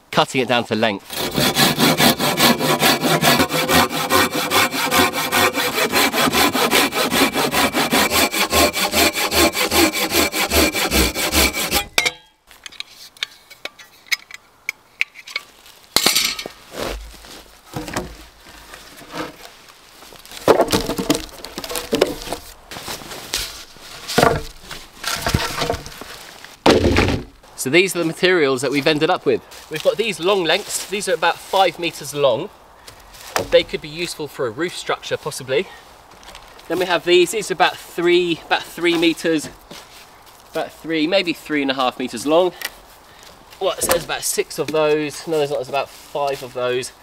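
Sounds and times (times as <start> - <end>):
saw cutting wooden poles: 1.1 - 12.0
wood knocking: 20.4 - 22.4, 24.2 - 26.0, 26.6 - 27.3.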